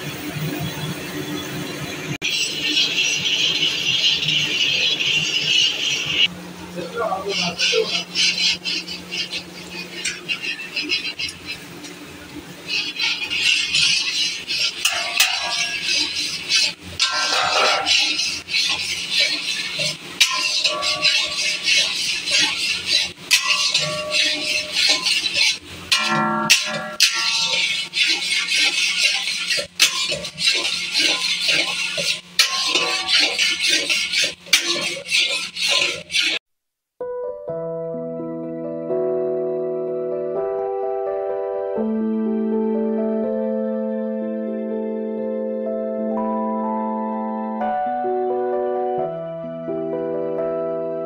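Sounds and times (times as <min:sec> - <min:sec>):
spatula scraping powder in pan: 0:07.0 - 0:11.7, 0:12.6 - 0:36.4
soft piano music: 0:37.0 - 0:51.0.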